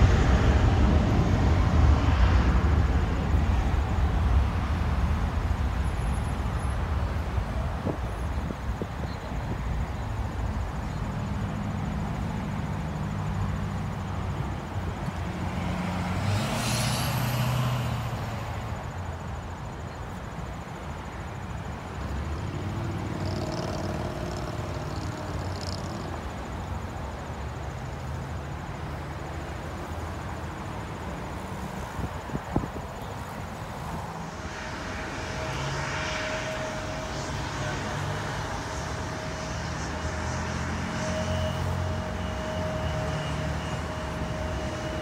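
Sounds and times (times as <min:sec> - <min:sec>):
heavy highway traffic: 0:00.0 - 0:45.0
vehicle passing loudly: 0:12.4 - 0:19.7, 0:22.0 - 0:26.8, 0:31.4 - 0:45.0.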